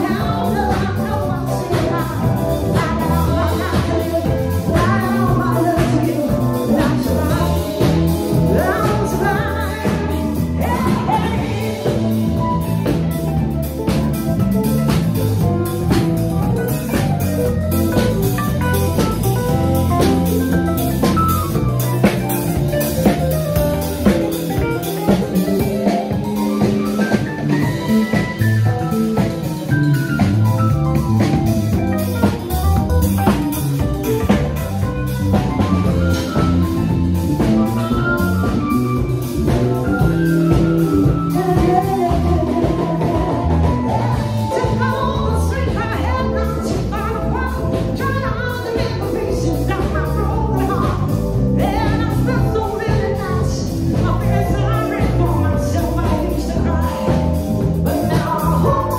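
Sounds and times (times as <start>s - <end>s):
person singing: 0.0s - 13.1s, 33.2s - 58.9s
live band playing: 0.0s - 58.9s.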